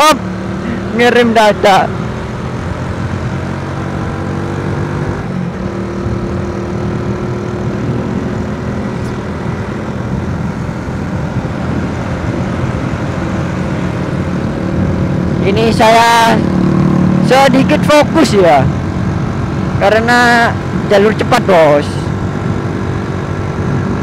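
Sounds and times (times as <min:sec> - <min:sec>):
motorcycle engine cruising: 0:00.0 - 0:24.0
wind and road noise: 0:00.0 - 0:24.0.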